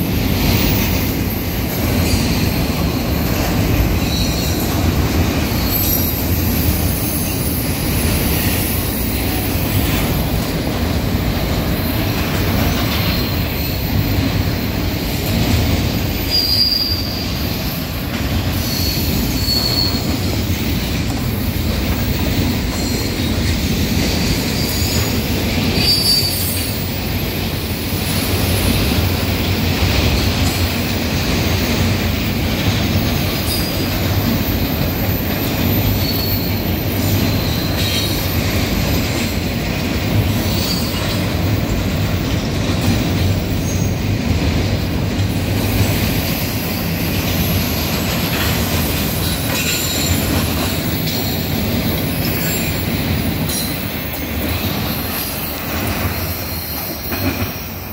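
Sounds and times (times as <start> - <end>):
train wheels rumbling on rail: 0.0 - 57.9
high wheel squeals: 0.8 - 10.3, 11.7 - 15.4, 16.0 - 20.5, 22.4 - 27.3, 33.3 - 39.2, 40.3 - 42.5, 43.5 - 44.1, 46.4 - 57.9.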